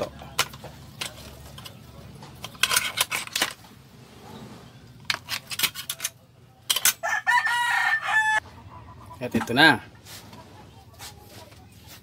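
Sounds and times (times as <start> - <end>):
utensils clinking against dishes: 0.0 - 3.7, 5.0 - 7.0.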